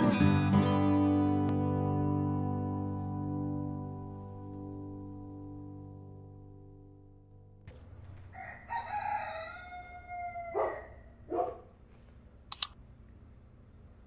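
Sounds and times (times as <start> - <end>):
background music: 0.0 - 6.9
rooster crowing: 8.3 - 11.2.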